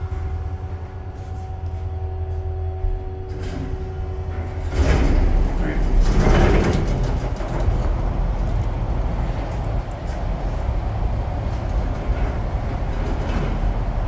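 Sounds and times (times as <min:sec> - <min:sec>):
elevator doors sliding shut: 0:00.0 - 0:14.0
parking garage low rumble: 0:00.0 - 0:14.0.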